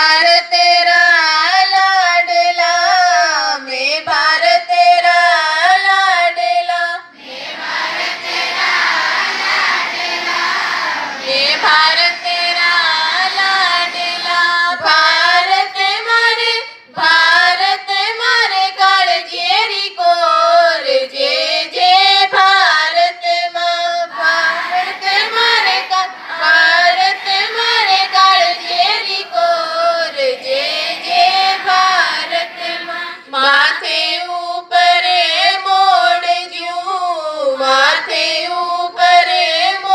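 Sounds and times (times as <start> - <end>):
woman singing: 0.0 - 7.1, 11.2 - 39.9
children singing: 7.1 - 19.6, 20.3 - 22.2, 23.0 - 36.4.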